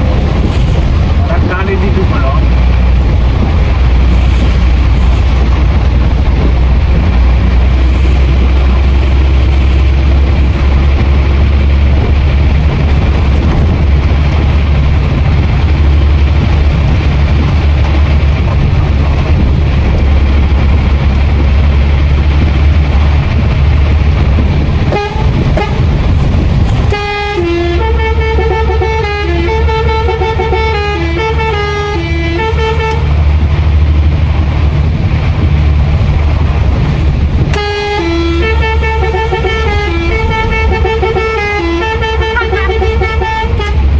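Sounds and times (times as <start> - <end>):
diesel truck engine rumble: 0.0 - 43.9
multi-note horn playing a tune: 24.9 - 25.8, 26.9 - 33.0, 37.6 - 43.8.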